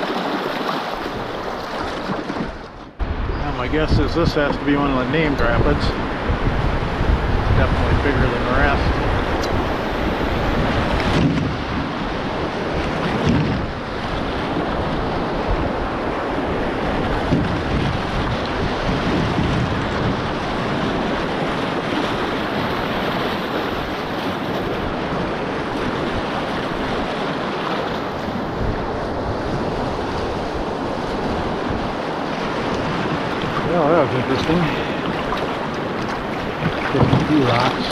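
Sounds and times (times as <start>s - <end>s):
wind buffeting microphone: 0.9s - 37.9s
whitewater rapids roaring: 20.3s - 37.9s.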